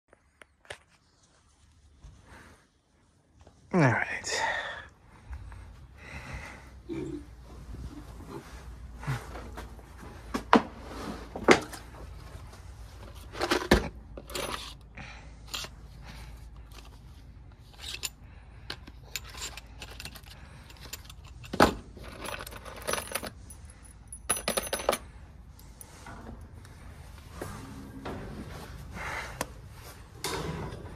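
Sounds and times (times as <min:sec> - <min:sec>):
metal fasteners rattling in tray: 0:17.6 - 0:23.5.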